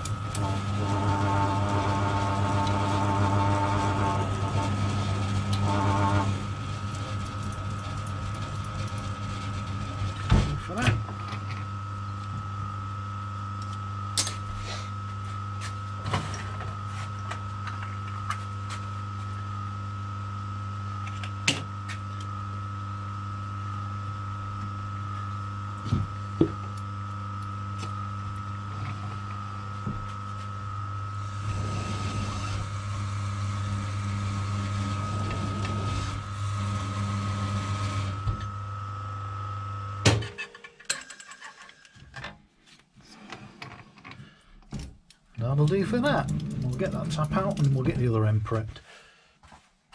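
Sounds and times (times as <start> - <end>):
metal lathe humming and whining: 0.0 - 40.0.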